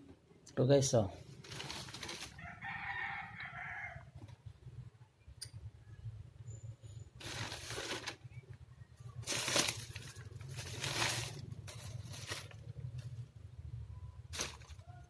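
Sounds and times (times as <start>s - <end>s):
plastic bags rustling: 1.3s - 2.6s, 7.2s - 8.4s, 9.2s - 13.3s, 14.3s - 15.0s.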